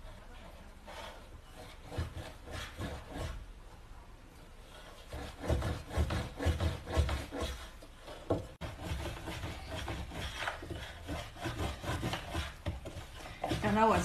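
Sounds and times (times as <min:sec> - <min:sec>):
rubbing on table: 0:04.7 - 0:14.0
hands pressing dough: 0:05.0 - 0:14.0.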